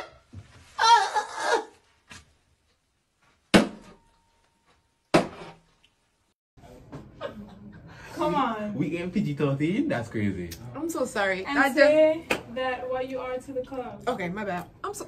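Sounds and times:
woman shrieking with laughter: 0.8 - 1.8.

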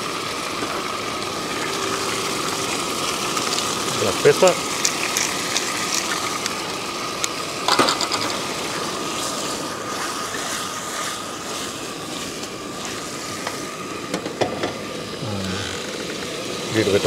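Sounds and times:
food sizzling in a wok: 0.0 - 17.0.

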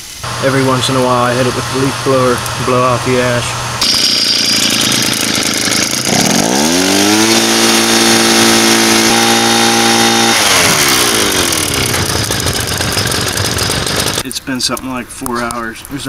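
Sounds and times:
leaf blower revving: 0.2 - 14.2.

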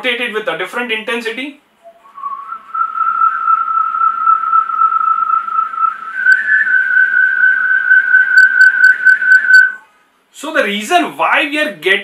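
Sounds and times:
whirled pipe whistling: 1.8 - 9.9.

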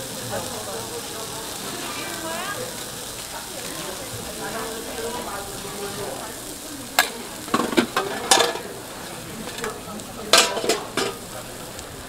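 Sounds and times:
filling sizzling on hot iron mold: 0.0 - 12.0
metal tools clacking and scraping: 7.0 - 8.7, 9.4 - 11.3.

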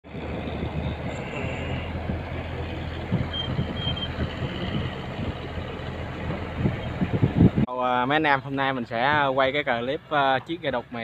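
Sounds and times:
boat engine running: 0.0 - 7.6.

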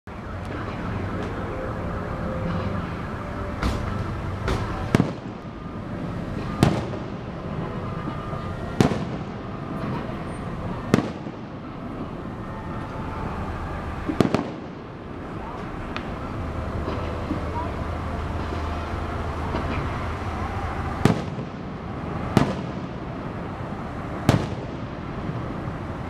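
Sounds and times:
steady background noise: 0.1 - 26.0.

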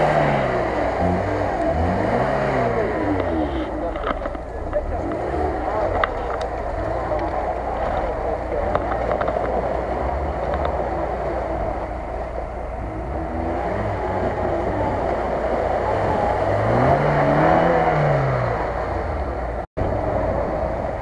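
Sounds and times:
car engine revving under load: 0.0 - 21.0
wheels spinning in mud: 0.0 - 21.0.

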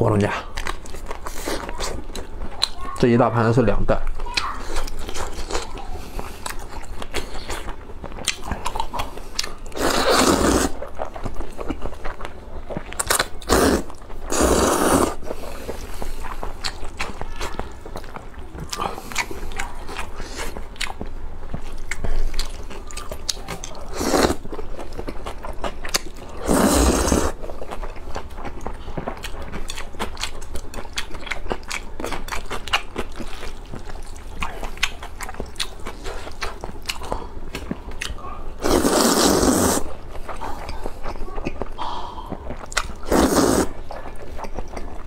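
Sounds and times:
wet chewing and lip smacks: 4.4 - 9.8, 15.2 - 26.4, 27.3 - 38.2, 39.6 - 43.1, 43.7 - 45.0
loud noodle slurps: 9.7 - 10.8, 13.4 - 15.8, 23.9 - 24.4, 26.4 - 27.4, 38.6 - 39.9, 43.0 - 43.8.

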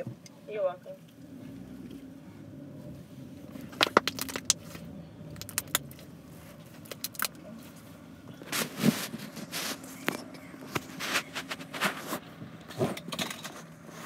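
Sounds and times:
car engine idling: 0.0 - 14.0
rustling: 2.8 - 14.0
small hard objects clicking: 3.7 - 4.6, 5.4 - 6.0, 6.8 - 7.4.

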